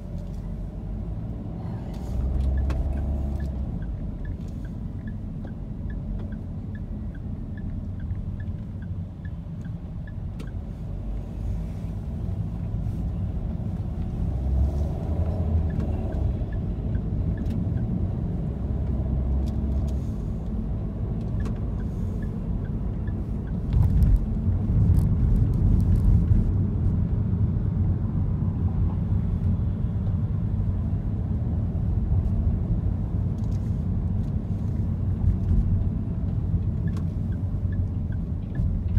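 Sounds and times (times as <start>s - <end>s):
engine and road rumble: 0.0s - 38.9s
light regular ticking: 1.9s - 11.3s, 14.5s - 26.0s, 34.2s - 38.9s.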